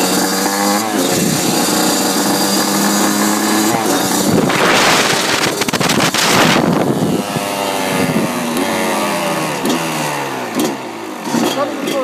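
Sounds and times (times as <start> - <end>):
dirt bike engine running: 0.0 - 12.0
wind buffeting microphone: 3.6 - 8.8.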